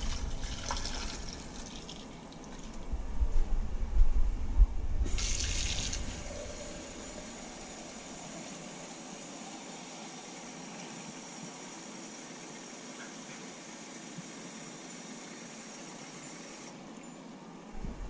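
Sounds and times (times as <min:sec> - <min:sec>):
faucet water filling glass jug: 0:00.0 - 0:02.6, 0:05.1 - 0:16.7.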